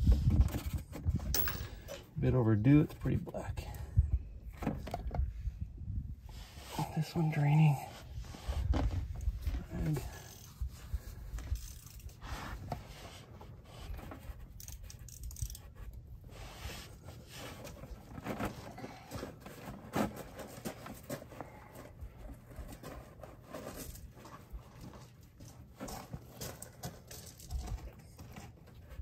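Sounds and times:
small clicks and scrapes: 8.4 - 29.0.

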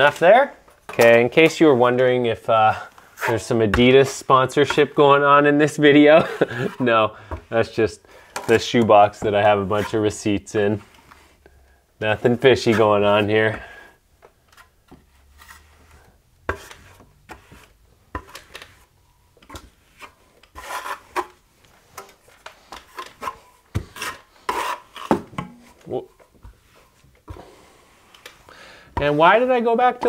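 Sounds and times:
trowel scraping wall: 1.0 - 5.3, 8.4 - 10.2, 14.6 - 18.9, 19.8 - 21.4, 22.0 - 25.8.

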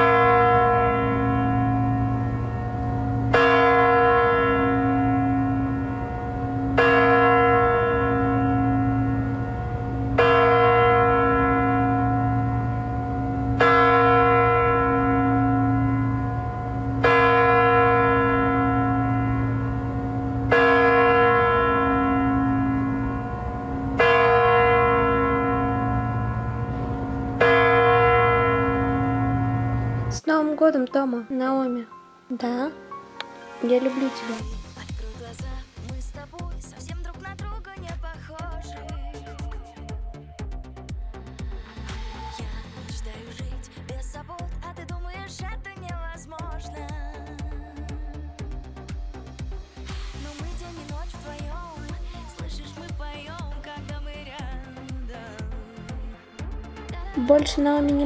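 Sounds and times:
clock bell striking: 0.0 - 30.2.

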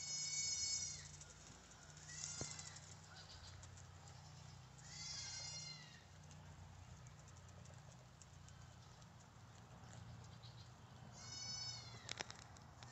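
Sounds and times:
guinea pigs wheeking: 0.0 - 6.2, 9.8 - 12.3.

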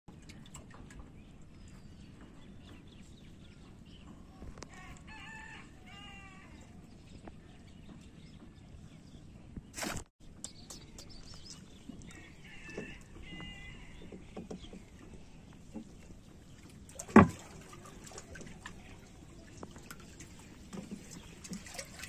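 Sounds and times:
outdoor background noise: 0.1 - 22.0
rooster crowing: 4.7 - 6.6, 12.2 - 14.0.

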